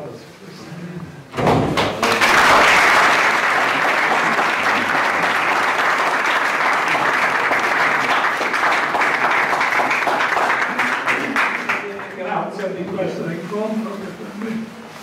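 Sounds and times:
people applauding: 0:01.7 - 0:12.3.

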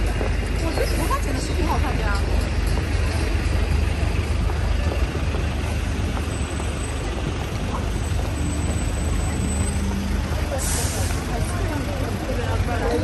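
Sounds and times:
crowd on pavement: 0:00.0 - 0:13.0
traffic rumble: 0:00.0 - 0:13.0
tyres hissing on wet road: 0:03.9 - 0:13.0.

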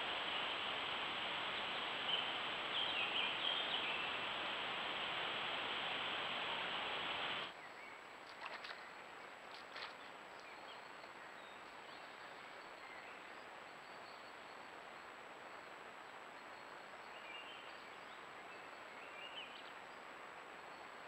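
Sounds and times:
bird chirps: 0:00.0 - 0:07.5
steady rushing noise: 0:00.0 - 0:07.5
thin high whine: 0:00.0 - 0:07.5.

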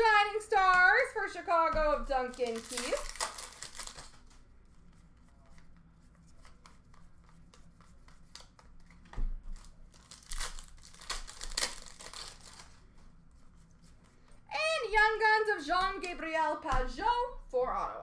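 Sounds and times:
cards and wrappers rustling: 0:00.7 - 0:05.7, 0:06.3 - 0:13.2.

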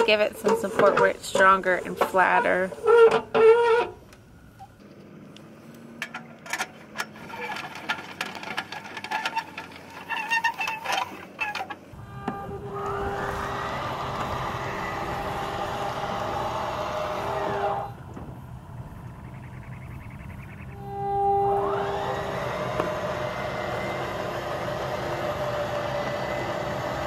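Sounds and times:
jack crank metal clicks and squeaks: 0:06.0 - 0:13.1
electric motor whine: 0:11.9 - 0:19.4, 0:20.6 - 0:27.0.

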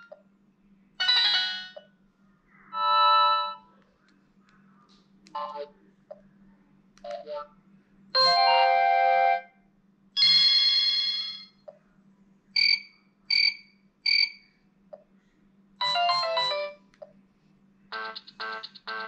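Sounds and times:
short beeps: 0:12.6 - 0:14.5.

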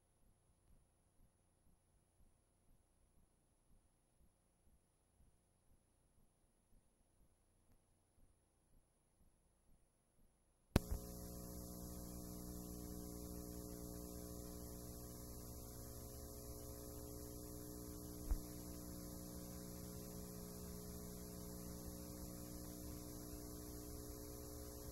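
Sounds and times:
click: 0:10.8 - 0:18.8
high tape hiss: 0:10.8 - 0:24.9
mains hum: 0:10.8 - 0:24.9.

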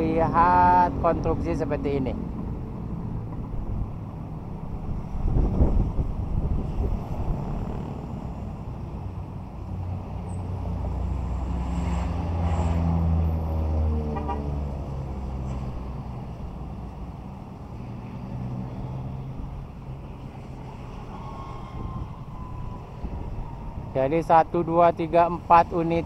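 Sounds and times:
vehicle engine passing by: 0:04.8 - 0:24.0.

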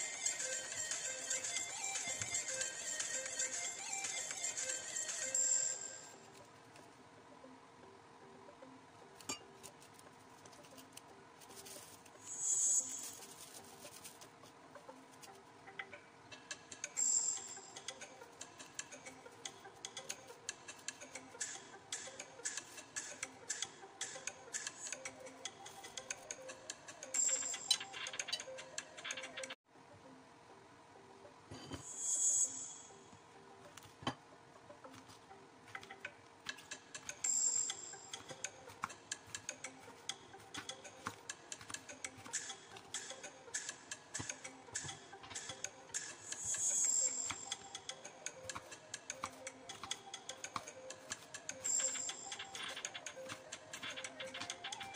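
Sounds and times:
metal spoon scraping melon: 0:09.2 - 0:14.3.

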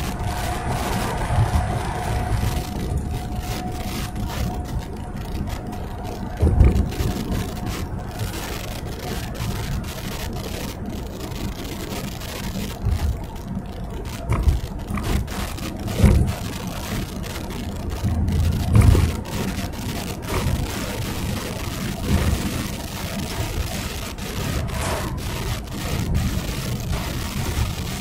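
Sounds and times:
road and engine rumble: 0:00.0 - 0:28.0
low thumps: 0:06.4 - 0:07.0.

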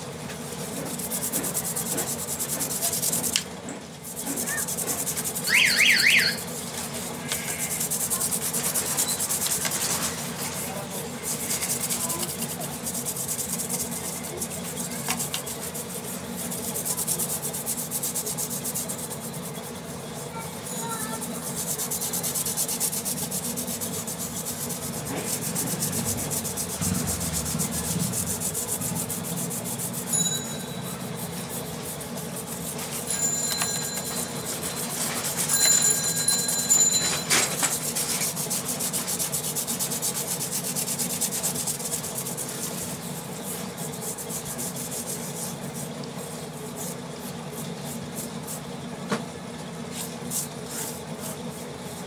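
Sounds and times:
scratchy scrubbing of circuit board: 0:04.0 - 0:10.3, 0:10.9 - 0:20.0, 0:20.8 - 0:33.2.

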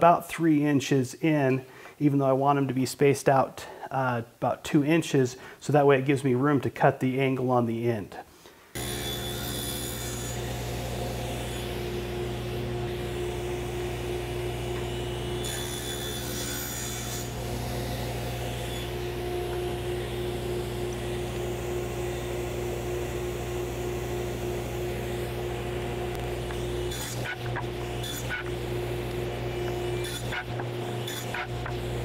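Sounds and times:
table saw cutting wood: 0:08.8 - 0:32.0.

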